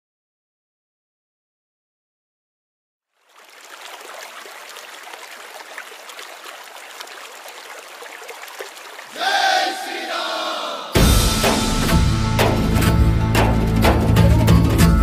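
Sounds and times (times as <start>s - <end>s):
music: 11.0s - 15.0s.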